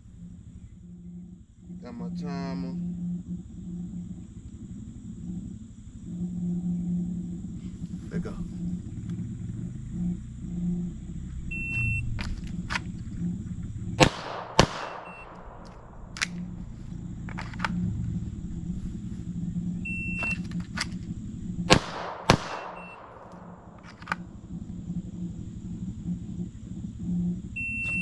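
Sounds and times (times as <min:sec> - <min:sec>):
faint distant gunshots: 0:13.8 - 0:18.0, 0:20.3 - 0:24.4
pistol shots with echo: 0:14.0 - 0:16.4, 0:21.7 - 0:23.8.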